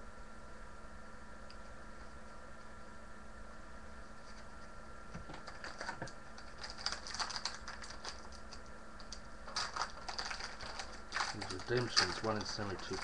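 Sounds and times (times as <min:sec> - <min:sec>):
card pack wrapper crinkling: 0:05.3 - 0:13.0.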